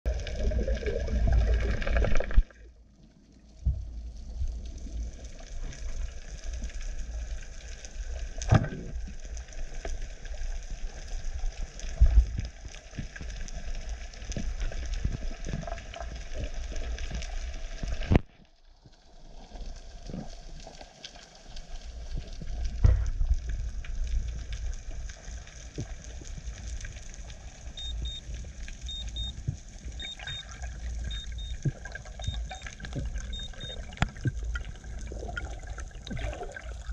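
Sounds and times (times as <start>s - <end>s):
underwater crackle of clicks: 0.1s - 2.6s, 3.2s - 36.9s
low water rumble: 0.1s - 36.9s
water rushing: 27.3s - 36.9s.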